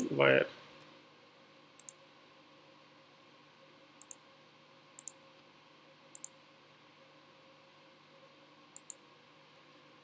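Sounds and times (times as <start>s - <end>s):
faint steady hum: 0.0s - 10.0s
computer mouse button clicks: 4.0s - 4.2s, 6.1s - 6.4s.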